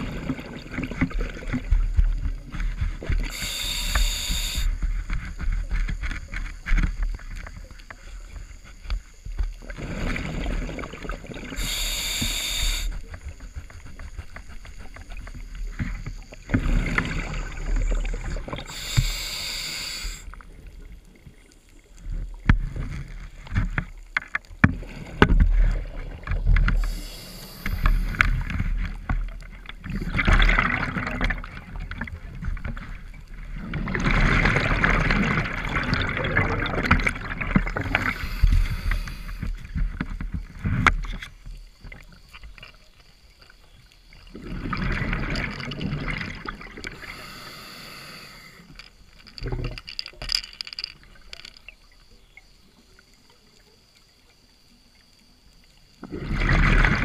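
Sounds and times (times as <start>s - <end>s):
exhaled bubbles rumbling: 0.0s - 19.2s, 24.5s - 42.3s, 44.1s - 47.2s, 56.0s - 57.0s
diver inhaling through regulator: 3.2s - 4.8s, 11.5s - 13.0s, 18.6s - 20.3s, 26.8s - 28.5s, 37.8s - 39.5s, 46.9s - 48.7s.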